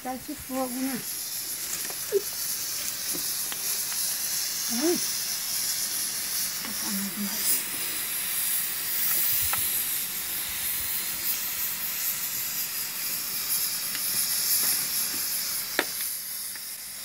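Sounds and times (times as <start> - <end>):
steam hissing from boiling pots: 0.0 - 17.0
firewood clicking: 1.5 - 4.1.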